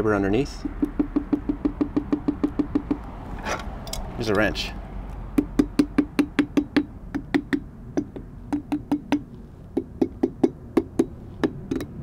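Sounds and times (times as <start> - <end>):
wrench tapping on hard coating: 0.6 - 3.1, 5.3 - 12.0.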